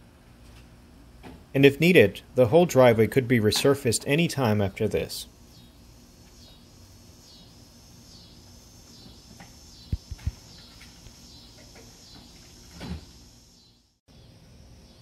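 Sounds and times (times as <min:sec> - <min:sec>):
small birds chirping: 0:04.7 - 0:15.0.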